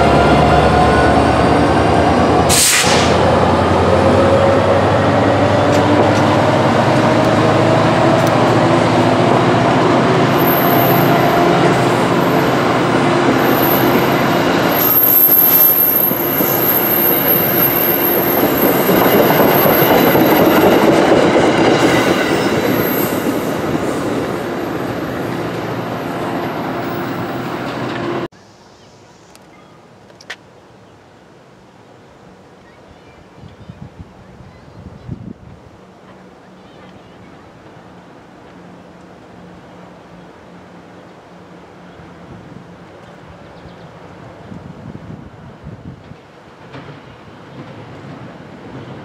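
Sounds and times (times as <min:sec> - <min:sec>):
locomotive engine drone: 0:00.0 - 0:28.3, 0:35.7 - 0:45.6
train wheels rumbling and clacking: 0:00.0 - 0:28.3, 0:45.8 - 0:49.0
high wheel squeal: 0:13.4 - 0:20.6.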